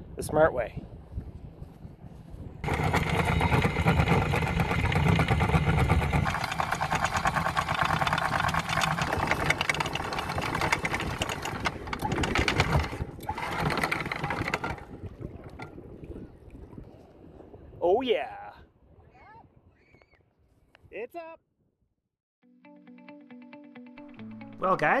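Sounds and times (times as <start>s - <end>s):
windlass motor hum: 0.8s - 17.8s.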